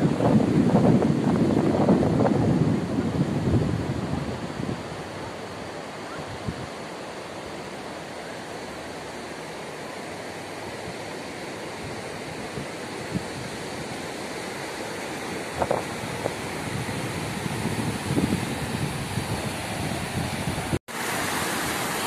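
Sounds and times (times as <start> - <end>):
wind buffeting microphone: 0.0 - 6.8, 11.8 - 14.1, 15.2 - 20.8
ocean surf breaking: 0.0 - 22.0.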